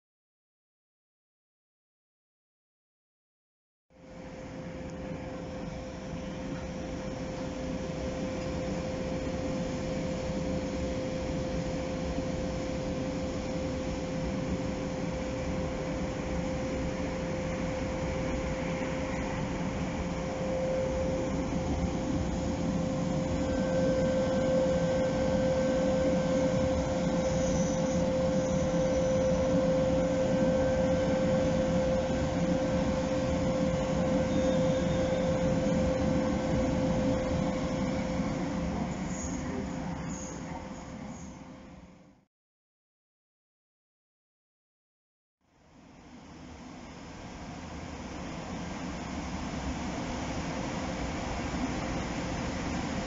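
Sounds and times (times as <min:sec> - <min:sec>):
electrical tone of trains: 0:03.9 - 0:42.2, 0:45.6 - 0:53.0
low mechanical rumble: 0:04.1 - 0:42.0.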